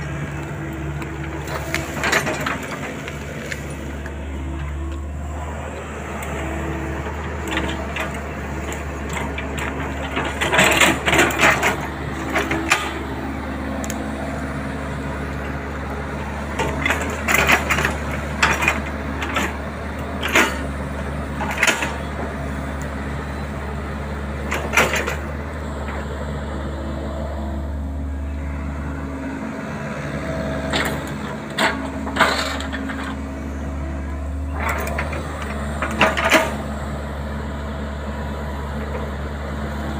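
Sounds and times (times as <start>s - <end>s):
excavator diesel engine running: 0.0s - 39.9s
wood cracking and crunching: 0.3s - 5.0s.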